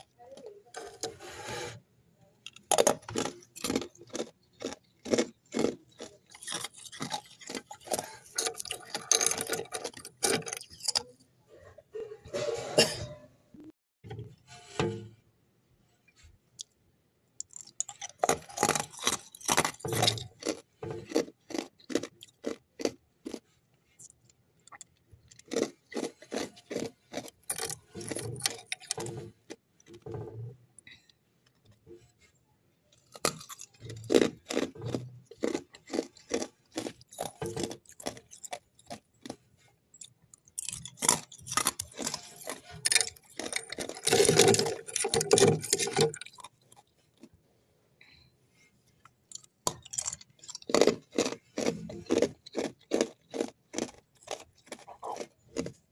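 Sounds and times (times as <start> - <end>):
ice being chewed with crunches: 2.5 - 11.2, 17.4 - 30.5, 33.0 - 47.4, 49.0 - 55.9.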